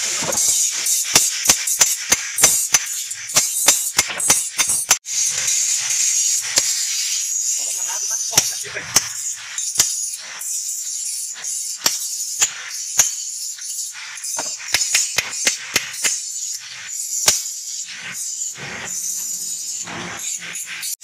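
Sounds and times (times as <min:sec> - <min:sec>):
hammer striking steel plate: 0:00.1 - 0:05.0, 0:14.4 - 0:16.2.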